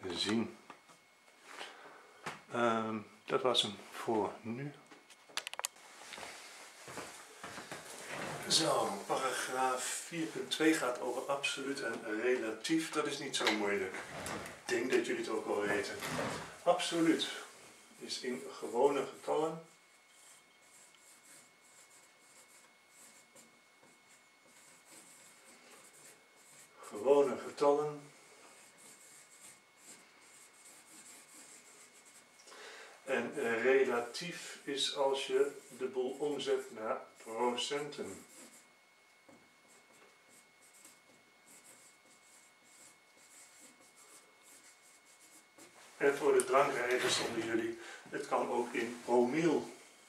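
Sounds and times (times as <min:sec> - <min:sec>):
marker scratching on whiteboard: 0:18.0 - 0:32.3, 0:35.2 - 0:38.7, 0:39.4 - 0:47.4.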